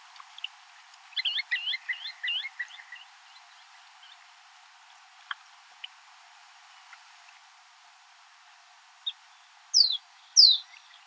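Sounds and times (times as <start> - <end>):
faint steady hiss: 0.0 - 11.0
bird chirping: 1.2 - 4.2, 9.0 - 11.0.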